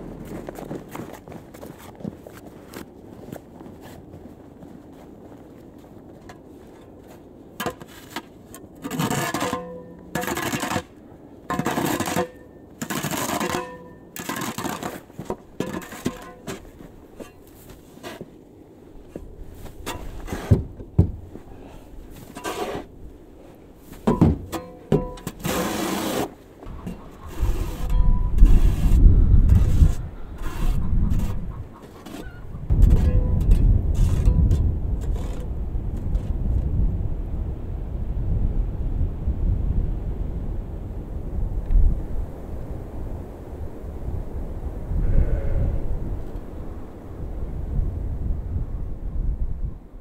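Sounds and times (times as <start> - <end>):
snow shovel scraping: 7.6 - 18.4, 19.1 - 20.6, 21.4 - 26.4, 27.2 - 34.4
dull knocks: 20.4 - 21.3, 24.0 - 25.2.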